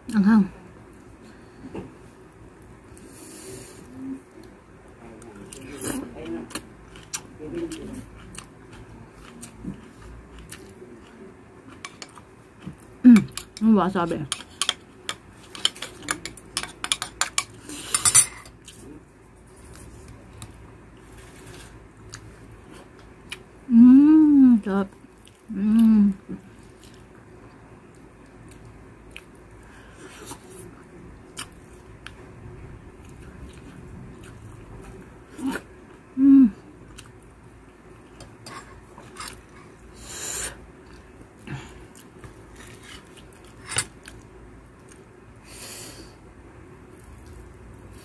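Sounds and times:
woman humming mmm: 23.7s - 24.6s, 25.5s - 26.4s, 35.4s - 36.7s.

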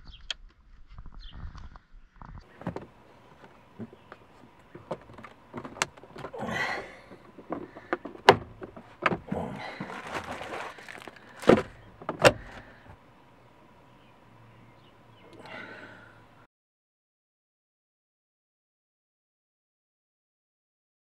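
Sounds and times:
plastic rustling and rubbing: 2.5s - 6.4s, 7.1s - 12.7s.

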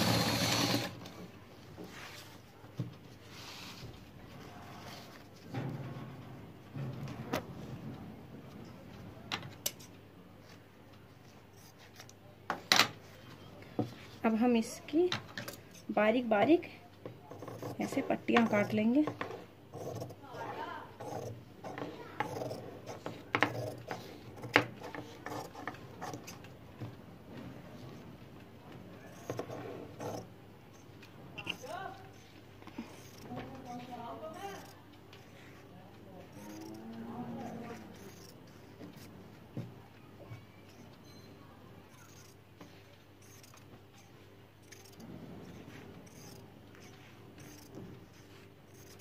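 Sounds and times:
scissors snipping fabric: 17.4s - 20.2s, 21.0s - 26.4s
shears snipping fabric: 29.0s - 35.4s.

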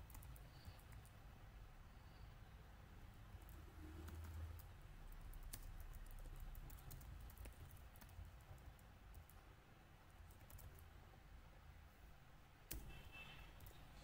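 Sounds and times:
faint keyboard typing clicks: 0.0s - 1.2s, 3.4s - 9.4s, 10.1s - 11.0s.

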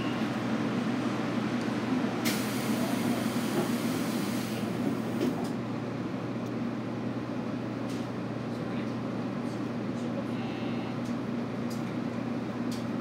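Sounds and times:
pneumatic doors shutting: 2.2s - 5.5s.

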